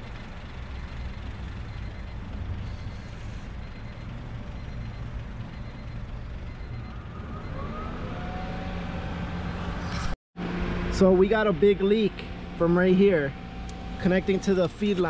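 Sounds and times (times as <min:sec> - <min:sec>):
car engine idling: 0:00.0 - 0:07.1.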